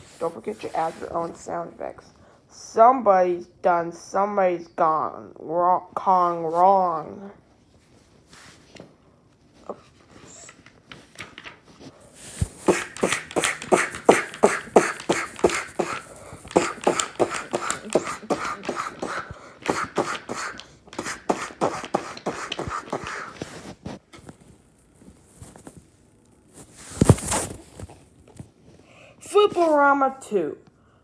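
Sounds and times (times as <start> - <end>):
percussive mouth sound effects: 12.6 - 23.4
book page flapping: 26.6 - 28.5.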